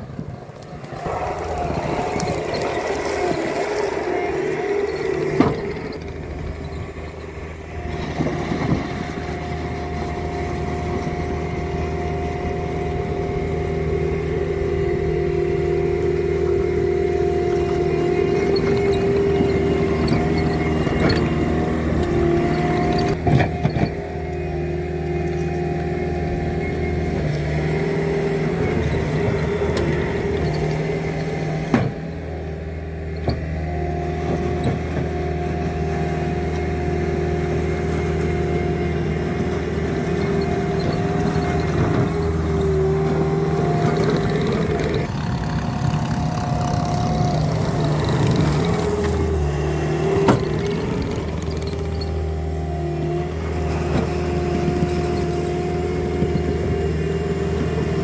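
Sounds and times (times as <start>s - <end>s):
diesel engine running: 0.0s - 58.0s
mechanical whine: 0.0s - 58.0s.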